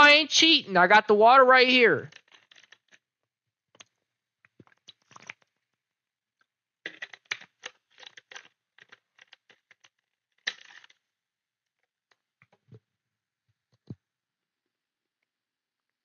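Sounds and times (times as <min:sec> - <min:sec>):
plastic bottle crinkling: 0:04.6 - 0:05.5.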